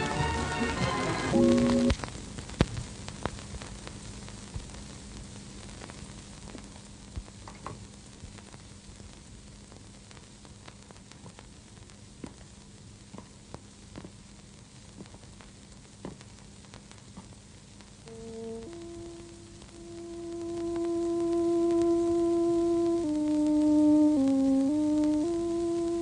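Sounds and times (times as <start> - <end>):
film hiss and crackle: 0.0 - 26.0
low steady hum: 1.2 - 26.0.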